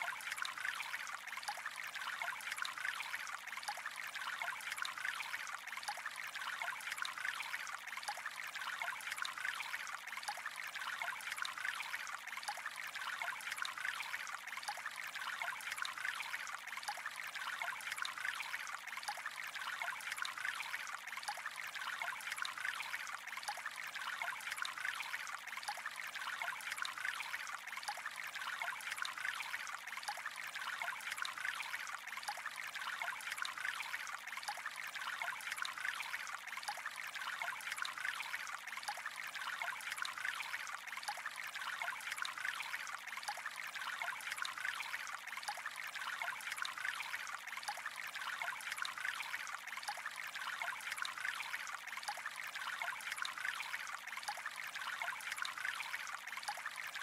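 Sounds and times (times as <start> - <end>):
trickle of running water: 0.0 - 57.0.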